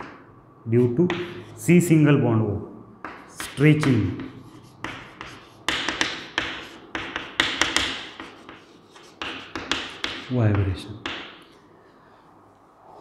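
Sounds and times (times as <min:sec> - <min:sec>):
chalk tapping on chalkboard: 0:01.0 - 0:01.6, 0:03.0 - 0:11.5
chalk scratching strokes: 0:01.1 - 0:01.7, 0:03.2 - 0:10.4.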